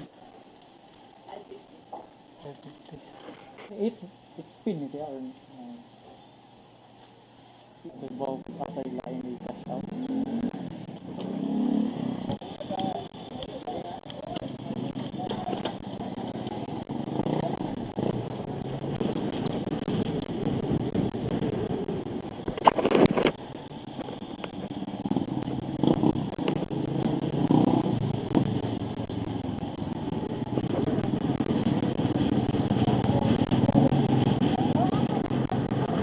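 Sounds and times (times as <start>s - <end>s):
road and riding rumble: 0.0s - 36.0s
motorcycle engines passing: 7.9s - 36.0s.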